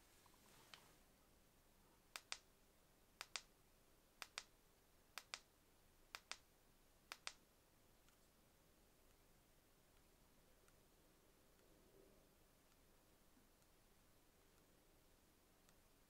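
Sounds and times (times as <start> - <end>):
sharp double clicks: 2.1 - 2.5, 3.2 - 3.5, 4.2 - 4.5, 5.2 - 5.5, 6.1 - 6.5, 7.1 - 7.4.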